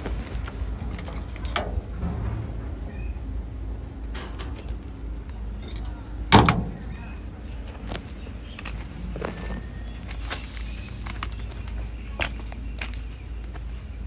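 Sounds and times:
steady low rumble: 0.0s - 14.0s
metal door opening: 0.8s - 3.4s, 4.1s - 7.4s
latch clicks: 4.1s - 7.0s.

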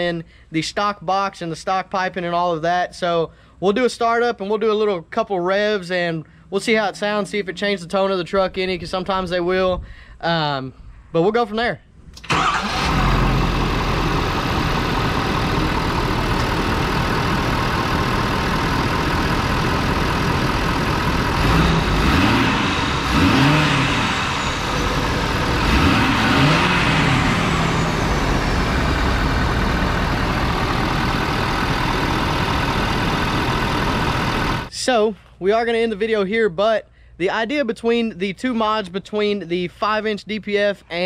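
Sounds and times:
diesel engine idling and revving: 12.3s - 34.7s.

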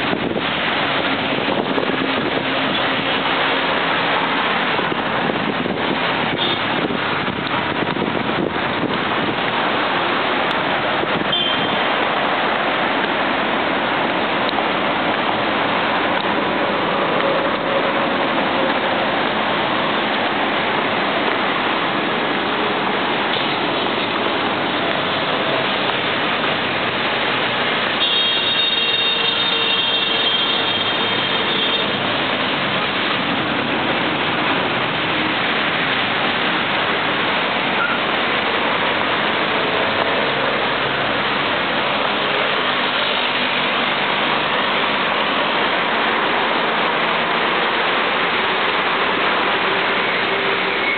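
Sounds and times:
wind blowing over microphone: 0.0s - 3.3s, 4.3s - 12.6s
cars passing on expressway: 0.0s - 50.9s.

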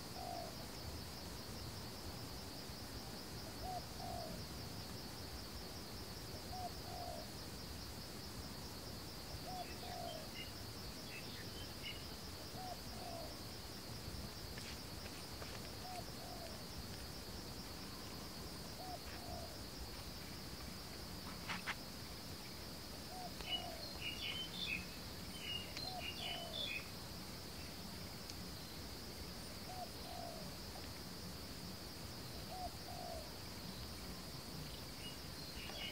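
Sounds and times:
insect drone: 0.0s - 35.9s
small birds chirping: 23.2s - 26.9s.

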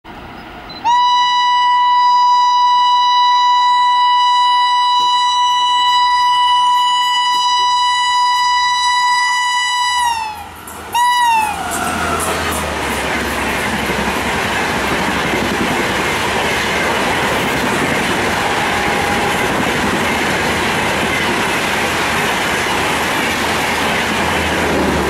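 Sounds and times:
train horn blast: 0.8s - 12.8s, 18.2s - 19.9s
train rushing past: 7.8s - 25.0s.

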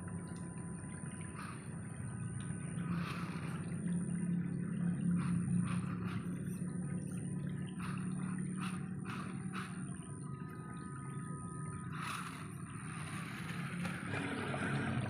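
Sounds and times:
thin steady high tone: 0.0s - 15.0s.

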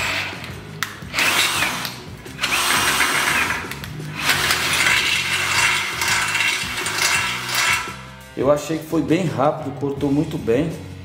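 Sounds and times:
drill grinding through steel: 0.0s - 0.5s, 1.1s - 8.2s.

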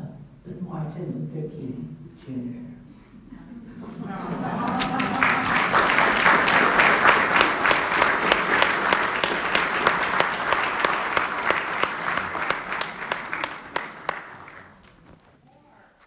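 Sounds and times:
audience applauding: 4.2s - 15.4s.

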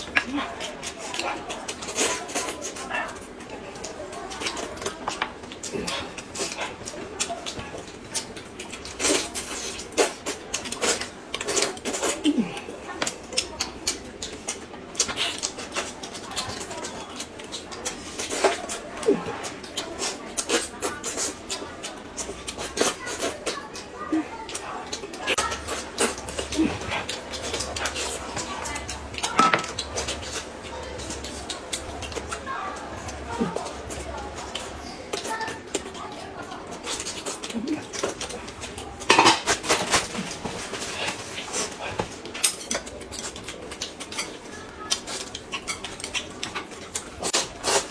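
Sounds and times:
chewing and lip-smacking: 0.0s - 47.9s
dishes and chopsticks clattering: 29.2s - 30.4s, 38.1s - 41.2s.

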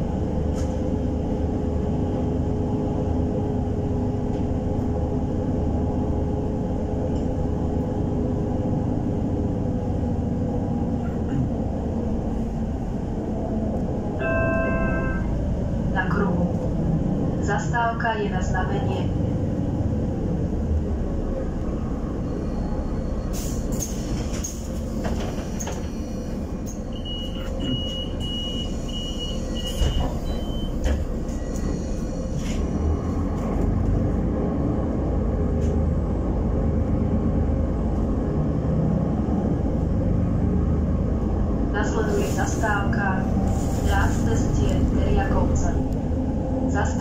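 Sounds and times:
bus engine and road rumble: 0.0s - 47.0s
rattles and knocks from bus body: 23.7s - 26.0s, 29.6s - 31.8s.

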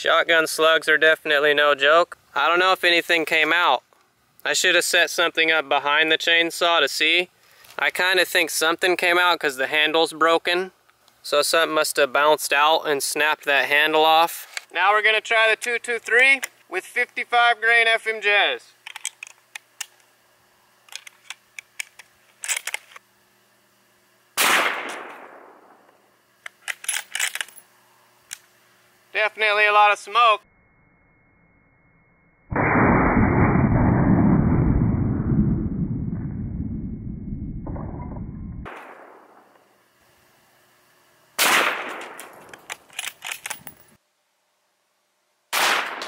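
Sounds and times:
rifle clicks: 20.9s - 23.0s, 24.4s - 27.6s, 41.5s - 43.8s
rifle shot: 24.4s - 25.8s, 32.5s - 34.4s, 38.6s - 39.5s, 41.4s - 42.6s, 45.5s - 46.0s
dull low rumble: 32.5s - 38.7s.

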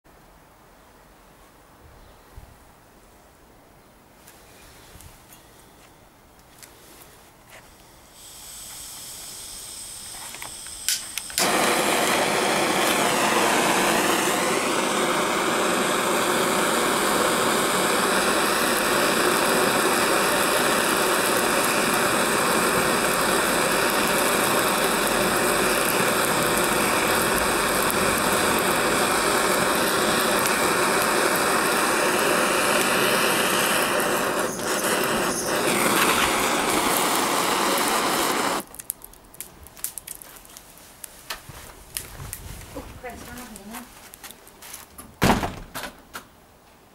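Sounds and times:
faint gas hiss: 0.4s - 44.8s
blowtorch flame roaring: 8.0s - 40.2s.

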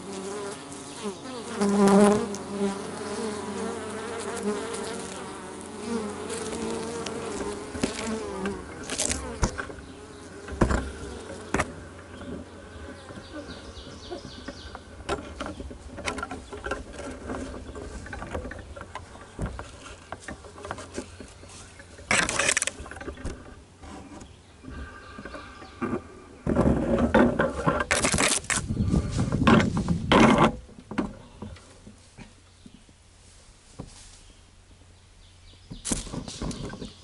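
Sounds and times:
bees buzzing: 0.0s - 29.7s
camera rubbing and knocking on pole: 7.0s - 9.8s, 10.5s - 12.4s, 25.8s - 31.1s, 35.7s - 37.0s.

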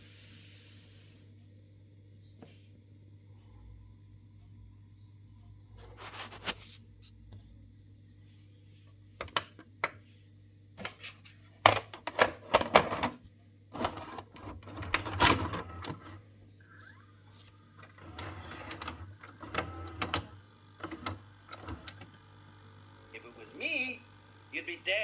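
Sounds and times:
tape loading mechanism whirring: 13.8s - 16.2s, 16.8s - 24.9s
cassette clicks and plastic clacks: 17.8s - 22.2s.

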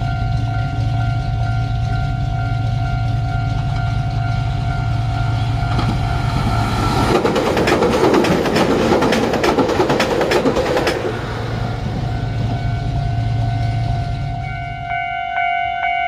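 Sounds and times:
electric train passing: 0.0s - 16.0s
wheels clicking over rail joints: 5.4s - 12.5s.

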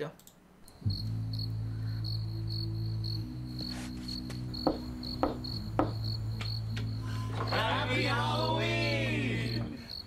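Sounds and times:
cricket-like chirping: 0.6s - 10.0s
knocks on a door: 4.6s - 6.1s.

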